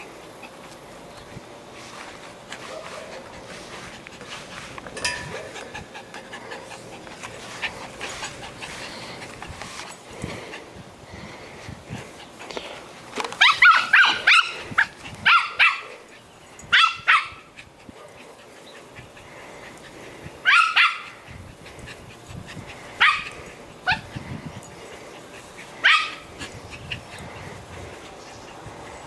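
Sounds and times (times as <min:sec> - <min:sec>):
small dog yapping: 0:13.4 - 0:15.9, 0:20.5 - 0:21.2, 0:25.8 - 0:26.2.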